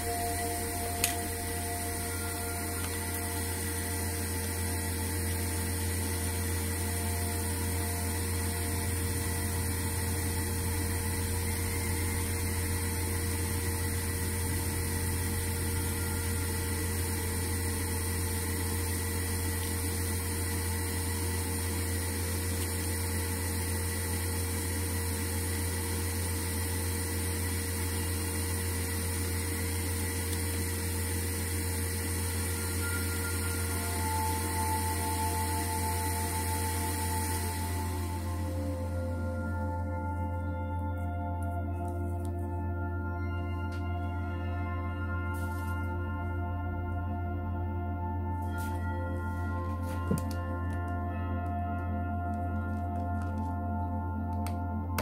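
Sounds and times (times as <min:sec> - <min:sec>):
faint high steady tones: 0:00.0 - 0:55.0
low electrical hum: 0:00.0 - 0:55.0.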